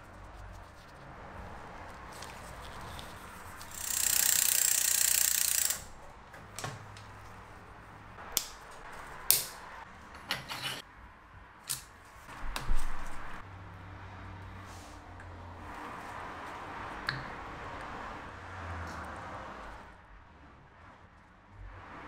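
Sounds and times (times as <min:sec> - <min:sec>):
tool clicks and ticks: 0:03.6 - 0:05.9.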